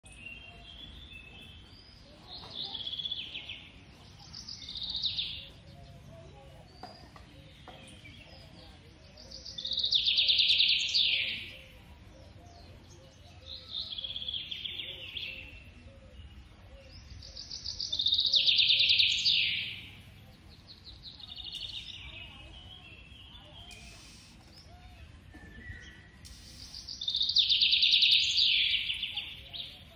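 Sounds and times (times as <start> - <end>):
faint steady background noise: 0.0 - 29.9
high chirping calls with trill: 21.0 - 25.0.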